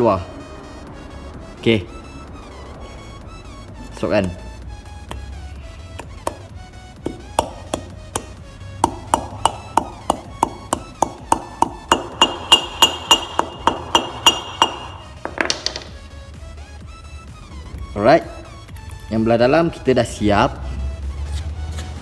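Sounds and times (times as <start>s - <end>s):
background music: 0.0s - 22.0s
hammer tapping metal: 6.0s - 16.0s.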